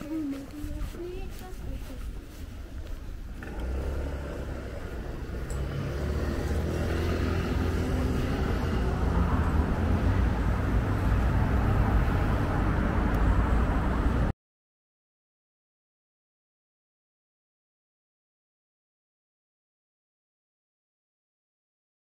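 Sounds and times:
road traffic rumble: 0.0 - 14.4.

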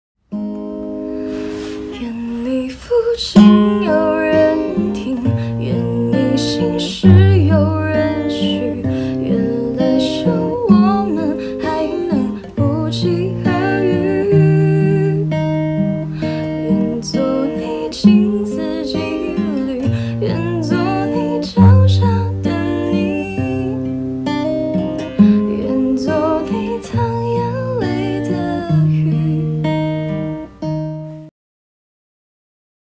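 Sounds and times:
strummed acoustic guitar: 0.3 - 31.3
person singing with vibrato: 1.4 - 15.4, 16.0 - 23.9, 25.2 - 29.7.

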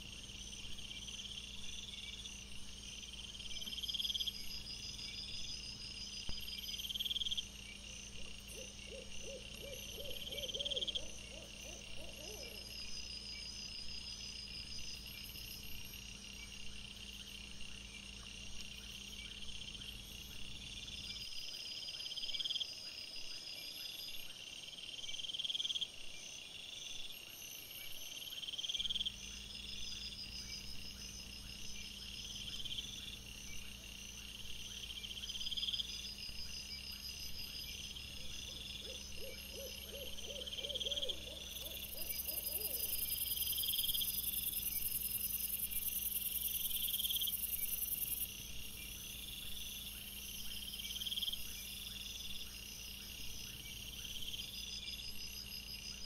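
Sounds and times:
crickets chirping: 0.0 - 56.0
faint steady hum: 0.0 - 56.0
quick lower-pitched insect calls: 32.8 - 56.0.

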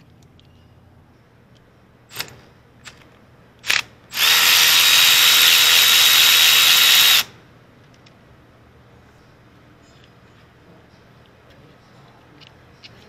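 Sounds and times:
power ratchet whining: 3.6 - 7.4.

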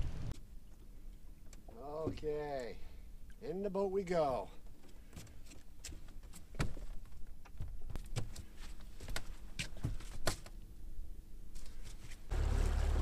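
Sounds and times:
sharp clicks and knocks in a boat: 0.3 - 3.4, 4.6 - 10.7.

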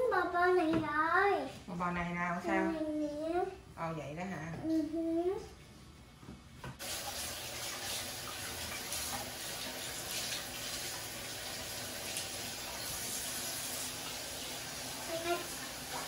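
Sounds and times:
faucet running into sink: 6.8 - 16.0.

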